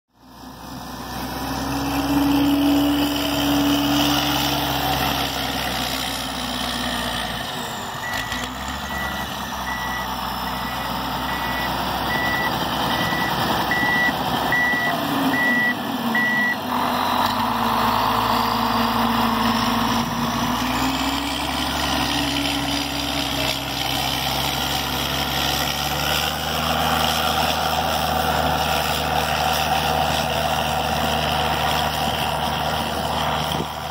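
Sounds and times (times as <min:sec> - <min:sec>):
diesel engine running: 0:00.2 - 0:33.9
reverse alarm beeping: 0:08.0 - 0:17.4.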